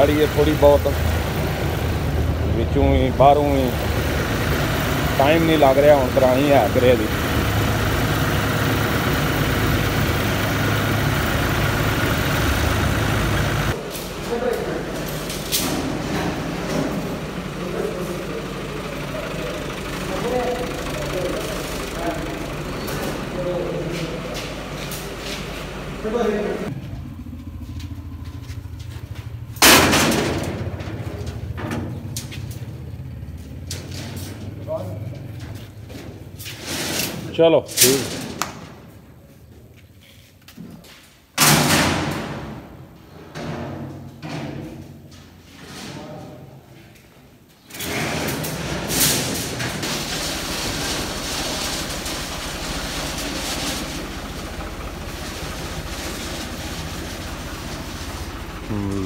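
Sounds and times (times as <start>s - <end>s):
low engine hum: 0.0s - 13.8s, 14.9s - 36.4s, 49.4s - 59.0s
metal bars crashing into trolley: 29.6s - 31.2s, 47.8s - 54.5s.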